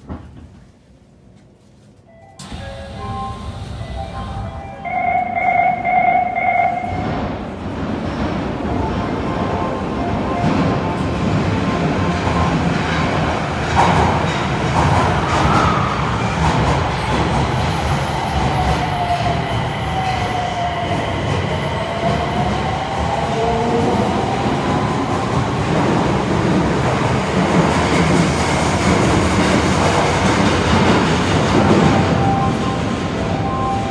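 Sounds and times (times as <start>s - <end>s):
train inverter whine: 2.3s - 7.7s
train wheels rumbling on rails: 6.7s - 33.9s.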